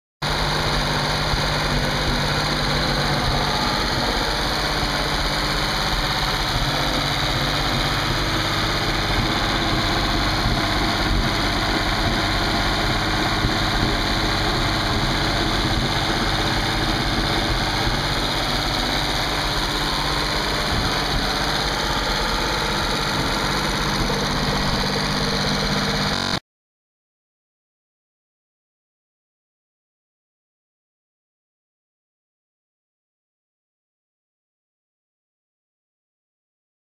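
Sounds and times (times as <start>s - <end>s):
boat engine running steadily: 0.2s - 26.4s.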